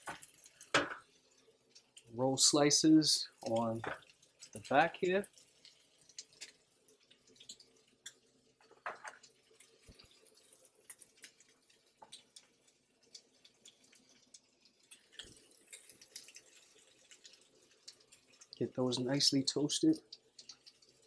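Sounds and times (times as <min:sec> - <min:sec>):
meat sizzling on a griddle: 0:00.0 - 0:21.0.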